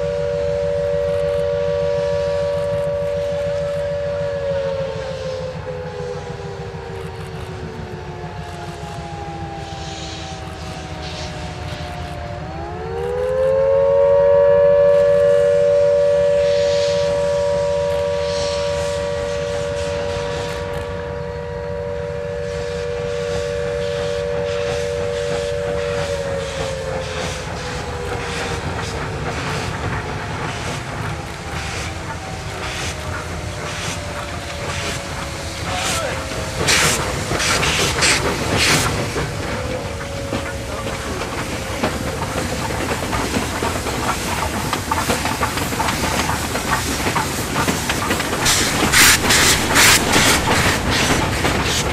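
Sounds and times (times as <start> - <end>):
steam hiss: 9.6 - 11.9, 15.4 - 21.2, 22.2 - 51.9
steam chime whistle: 13.0 - 27.6
locomotive exhaust beats: 13.6 - 51.9.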